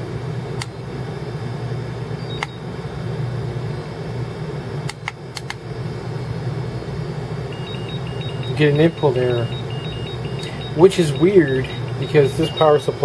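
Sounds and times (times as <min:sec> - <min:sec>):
steady low hum: 0:00.0 - 0:13.0
short faint beep: 0:07.6 - 0:13.0.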